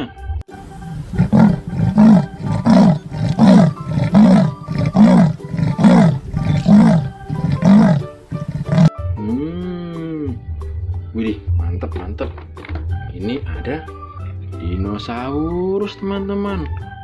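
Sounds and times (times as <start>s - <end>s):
leopard sawing call: 0.8s - 8.9s.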